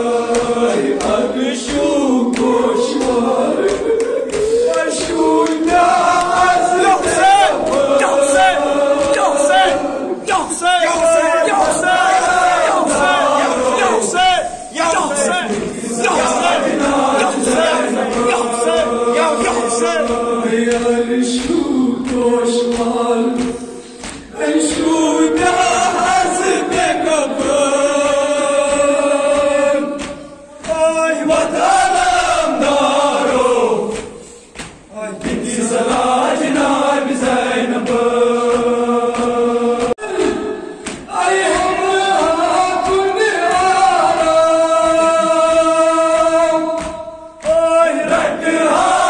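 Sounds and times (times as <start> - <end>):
men chanting together: 0.0 - 49.0.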